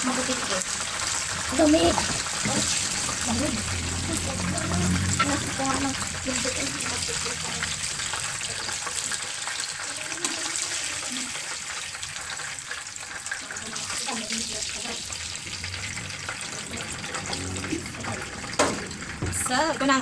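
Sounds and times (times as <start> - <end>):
chicken sizzling in hot oil: 0.0 - 20.0.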